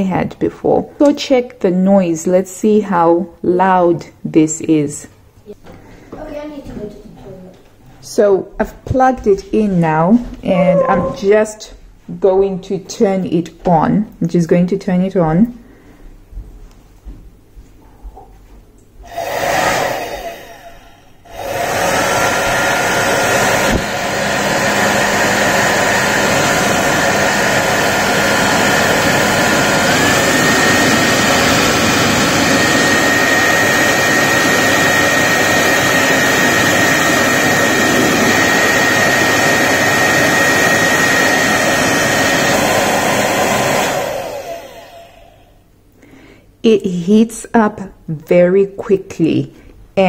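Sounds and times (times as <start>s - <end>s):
hair dryer running: 19.0s - 45.6s.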